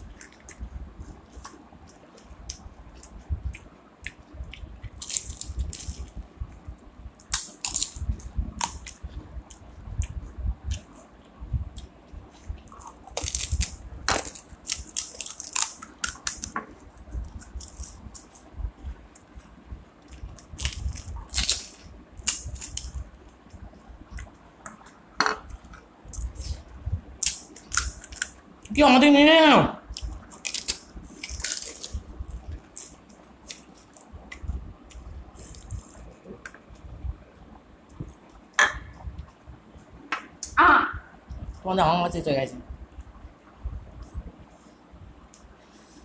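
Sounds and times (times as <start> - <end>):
crisp shells cracking: 4.9 - 6.0, 7.2 - 8.0, 12.8 - 16.6, 20.4 - 23.0, 30.0 - 34.1.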